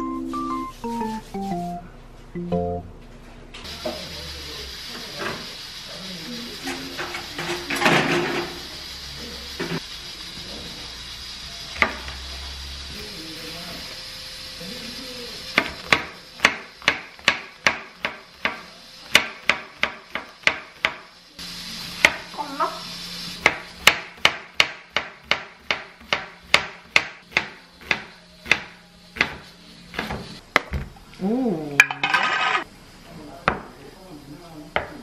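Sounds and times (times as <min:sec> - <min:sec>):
knife chopping on wooden board: 0:23.4 - 0:30.8.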